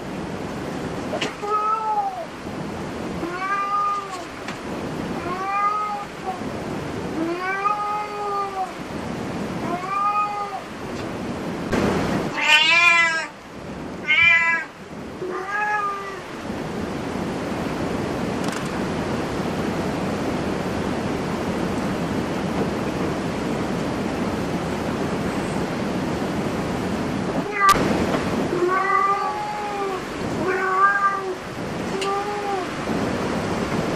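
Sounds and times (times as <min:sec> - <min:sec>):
steady background hiss: 0:00.0 - 0:33.9
cat meowing: 0:01.3 - 0:02.3, 0:03.2 - 0:04.3, 0:05.2 - 0:06.4, 0:07.2 - 0:08.8, 0:09.6 - 0:10.7, 0:12.3 - 0:13.4, 0:14.0 - 0:16.3, 0:27.4 - 0:27.8, 0:28.5 - 0:32.8.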